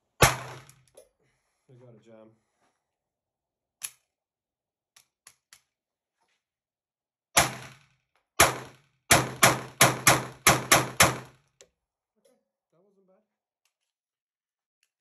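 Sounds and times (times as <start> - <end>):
pistol shots with echo: 8.4 - 11.4.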